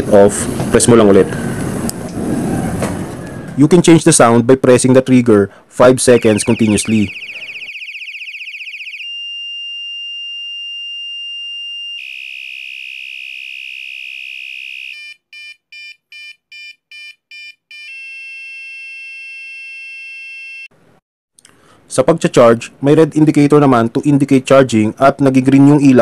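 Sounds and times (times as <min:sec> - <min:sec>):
electronic bike horn tones: 0:06.1 - 0:15.2, 0:17.8 - 0:20.7.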